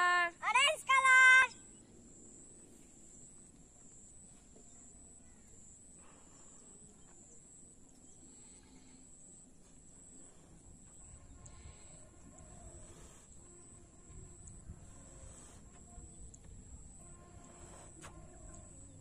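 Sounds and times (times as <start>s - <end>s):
breathy puffs into balloon: 8.2s - 16.3s, 16.9s - 18.7s.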